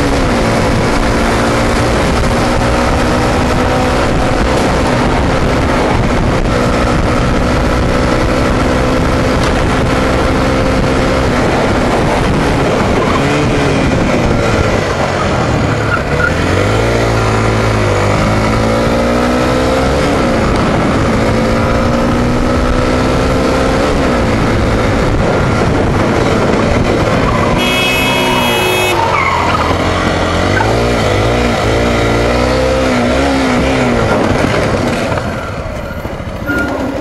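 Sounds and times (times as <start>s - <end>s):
wind rush on microphone: 0.0s - 27.9s
motorcycle engine accelerating: 0.0s - 37.0s.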